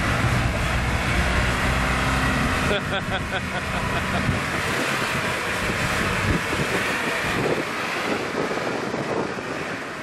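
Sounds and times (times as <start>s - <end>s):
off-road vehicle engine running: 0.0s - 10.0s
wind buffeting microphone: 4.2s - 10.0s.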